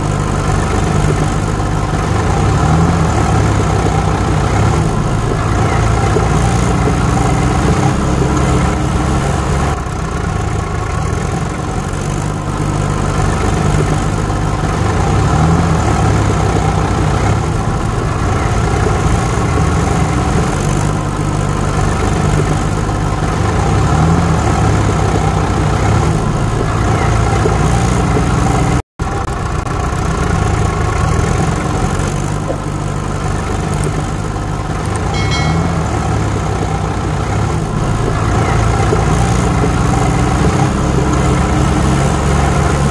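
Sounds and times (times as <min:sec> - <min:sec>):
vehicle engine idling: 0:00.0 - 0:42.9.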